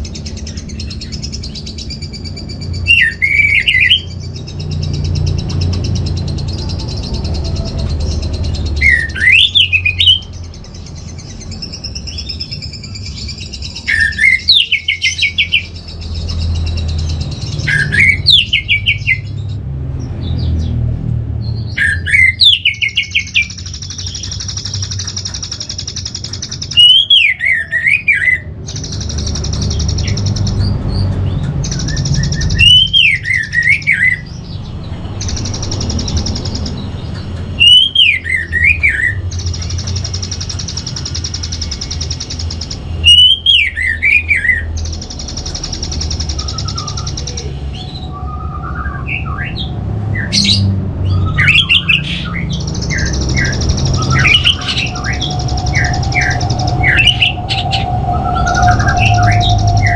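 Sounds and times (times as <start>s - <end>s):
bird whistled song: 0.0s - 19.6s, 21.4s - 59.9s
bird chirps: 0.0s - 59.9s
low rumble: 52.2s - 59.9s.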